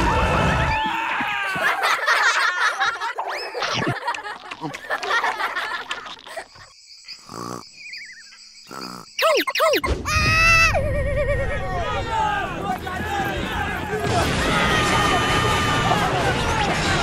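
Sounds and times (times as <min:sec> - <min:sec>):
cartoon creature chirping cries: 0:09.2 - 0:11.7.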